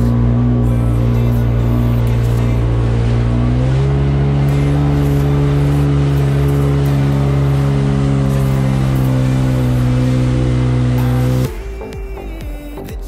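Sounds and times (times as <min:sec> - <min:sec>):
rushing water: 0:00.0 - 0:11.9
jet ski engine running: 0:00.0 - 0:13.0.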